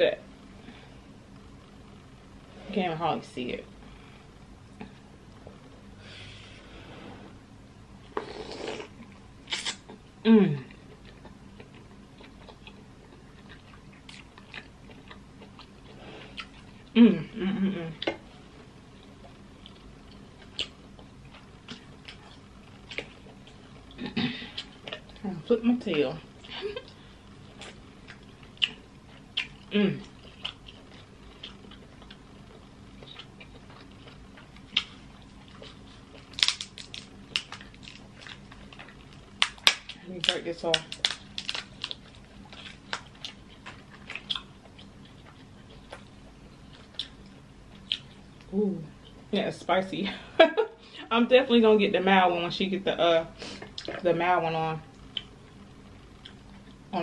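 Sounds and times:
mouth clicks and smacks: 9.5 - 9.9
soft chewing: 10.6 - 17.0, 17.9 - 49.3, 53.5 - 54.1, 54.9 - 56.9
crab shell cracking: 36.2 - 44.5.

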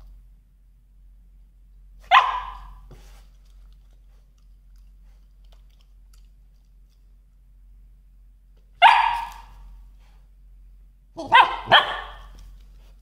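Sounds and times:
puppy barking: 2.0 - 2.8, 8.8 - 9.6, 11.2 - 12.4
dog mouth noises and clicks: 3.4 - 7.2.

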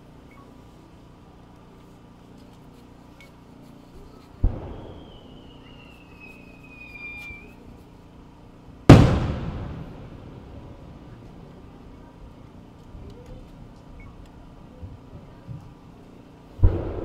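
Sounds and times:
firework mortar thump: 4.4 - 5.2, 8.9 - 11.2, 16.6 - 17.0
firework bang: 4.4 - 5.6, 8.9 - 11.2, 16.6 - 17.0
firework whistle: 4.4 - 7.6.

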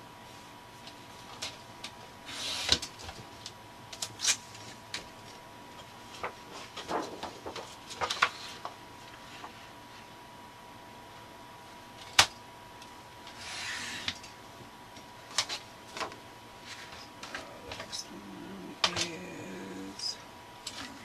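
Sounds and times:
cardstock sliding and rustling: 13.3 - 14.2.

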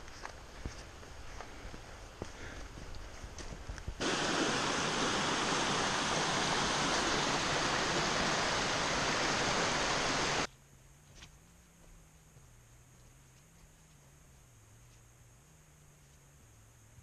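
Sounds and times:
footsteps on dirt trail: 0.0 - 4.8, 11.0 - 15.0
waterfall rushing over rocks: 4.0 - 10.5.

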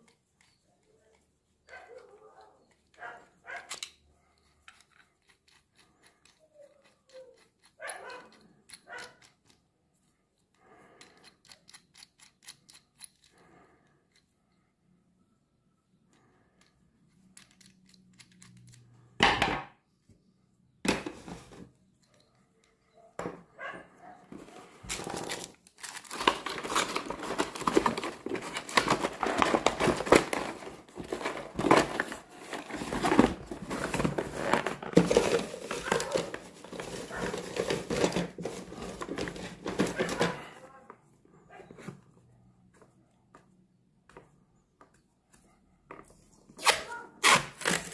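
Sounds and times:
small metal clicks and taps: 0.0 - 9.7, 10.4 - 13.4, 16.1 - 18.9
noisy handling sounds: 20.8 - 47.9
cardboard box rustling: 24.3 - 40.4.

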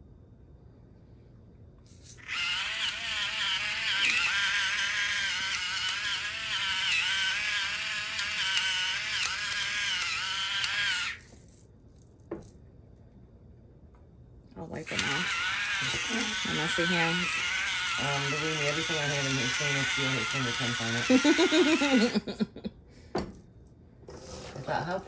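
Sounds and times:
electric grinder motor whining: 2.2 - 11.4, 14.9 - 22.2.

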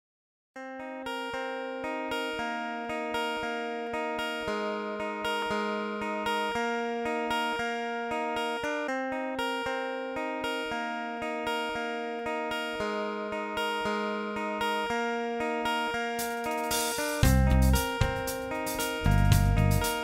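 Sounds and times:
instrumental music with plucked notes: 0.6 - 20.0.

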